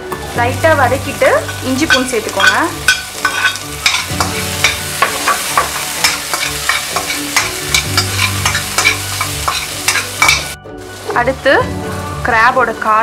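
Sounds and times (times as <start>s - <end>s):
vegetables sizzling in hot oil: 0.0s - 13.0s
spoon scraping and tapping pan: 1.4s - 10.6s.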